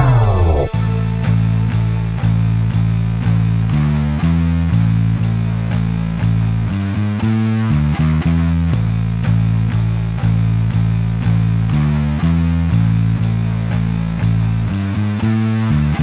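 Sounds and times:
instrumental guitar and bass music: 0.0s - 16.0s.

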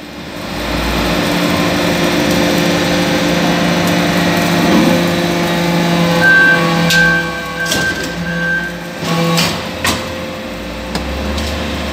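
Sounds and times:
hydraulic power unit hum: 0.0s - 11.9s
thin high whine: 2.8s - 9.4s.

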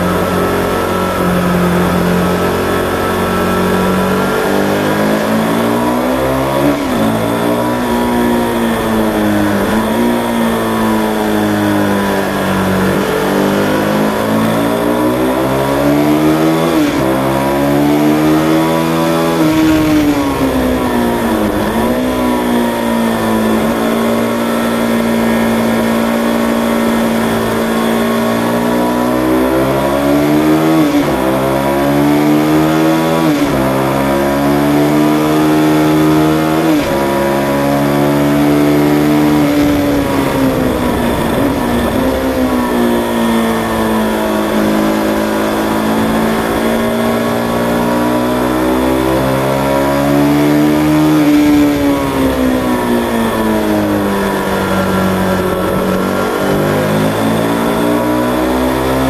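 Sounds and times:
motorcycle engine revving hard: 0.0s - 59.0s
wind rush: 38.9s - 47.8s.

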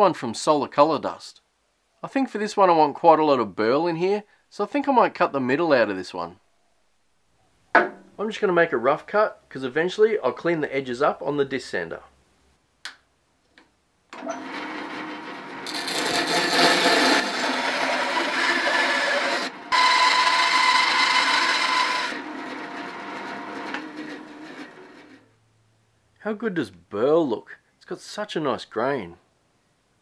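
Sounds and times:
bandsaw cutting wood: 14.2s - 25.2s.

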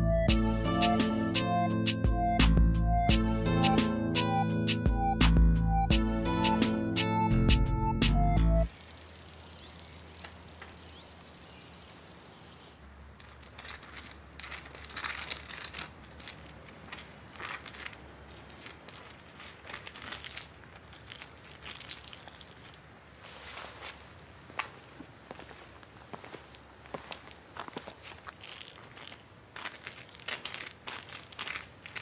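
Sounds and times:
dry grass rustling and crackling: 12.9s - 32.0s.

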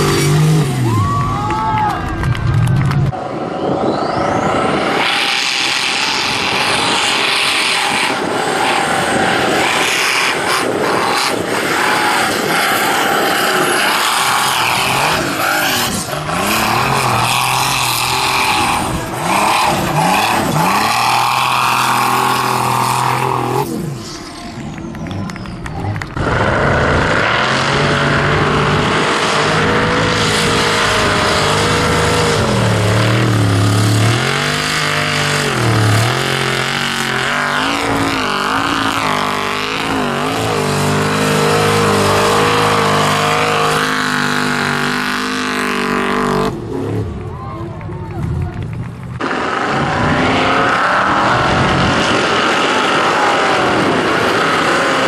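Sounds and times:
racing car engine revving: 0.0s - 1.3s, 4.0s - 55.0s.

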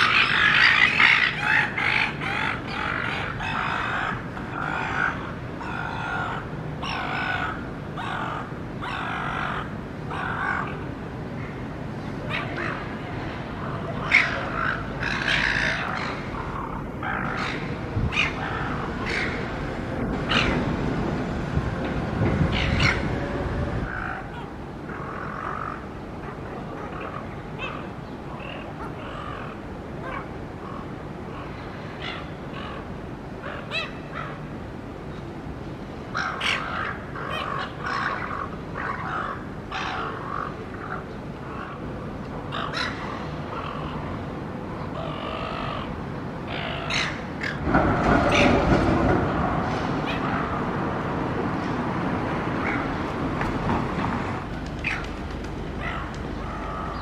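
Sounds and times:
harsh bird calls: 0.0s - 13.0s, 13.6s - 20.7s, 22.5s - 34.5s, 44.8s - 50.8s, 54.6s - 57.0s
street traffic noise: 0.0s - 57.0s.

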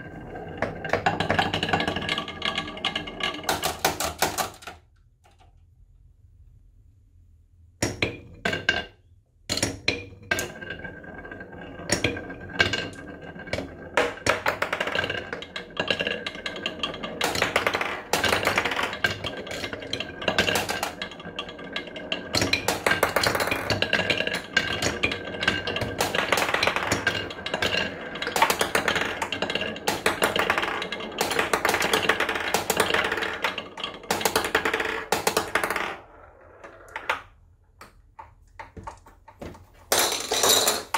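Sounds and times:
marbles rattling down wooden tracks: 0.0s - 4.8s, 9.9s - 37.4s.

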